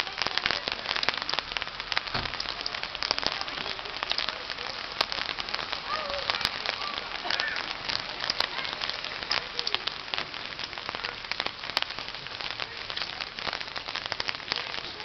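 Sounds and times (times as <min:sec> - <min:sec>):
dense crackling noise: 0:00.0 - 0:15.0
faint voices: 0:00.0 - 0:15.0.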